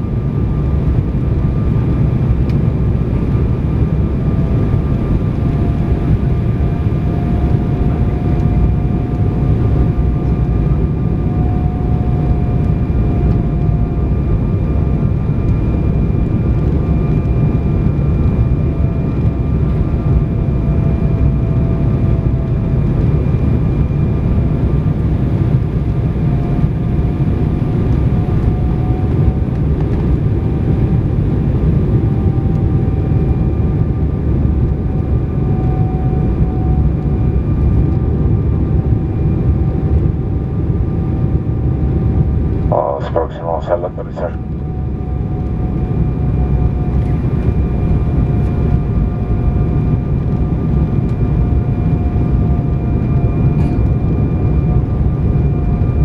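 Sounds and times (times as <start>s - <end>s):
jet engine roar in cabin: 0.0s - 56.0s.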